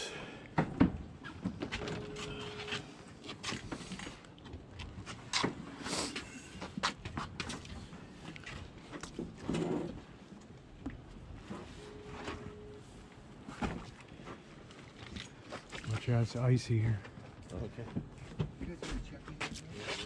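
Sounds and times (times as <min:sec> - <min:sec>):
footsteps on boat deck: 0:00.6 - 0:11.6, 0:17.0 - 0:20.0
brief steady tone: 0:01.8 - 0:03.0, 0:11.5 - 0:13.0.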